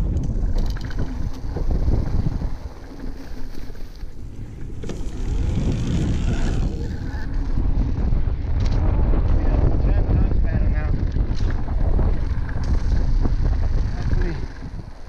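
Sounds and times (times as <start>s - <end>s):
mountain bike rattling on trail: 0.0s - 15.0s
wind noise on microphone: 0.0s - 15.0s.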